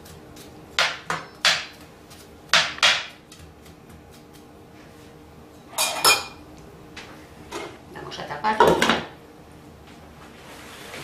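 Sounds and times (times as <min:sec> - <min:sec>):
utensil knocking against frying pan: 0:02.5 - 0:03.1.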